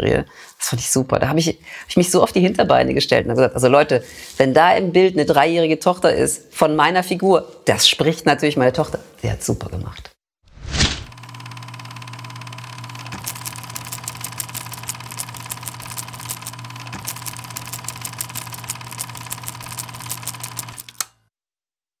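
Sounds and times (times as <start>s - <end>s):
small machine humming: 11.0s - 21.2s
fast rattle of clicks: 11.4s - 21.1s.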